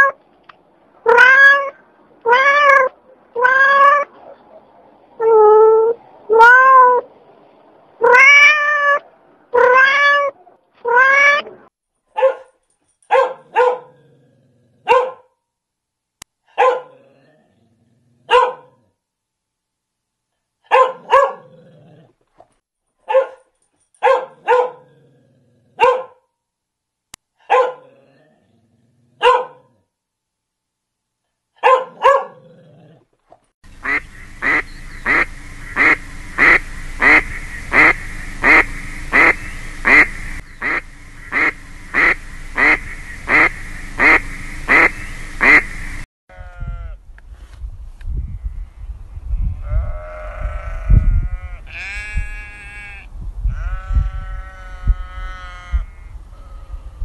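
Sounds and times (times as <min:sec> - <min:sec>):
dog barking: 0:12.1 - 0:14.0, 0:14.8 - 0:15.3, 0:16.5 - 0:17.0, 0:18.3 - 0:18.8, 0:20.7 - 0:21.5, 0:23.0 - 0:24.9, 0:25.8 - 0:26.2, 0:27.4 - 0:28.0, 0:29.2 - 0:29.7, 0:31.6 - 0:32.5
constant hiss: 0:33.7 - 0:46.0
duck quacking: 0:33.8 - 0:46.0.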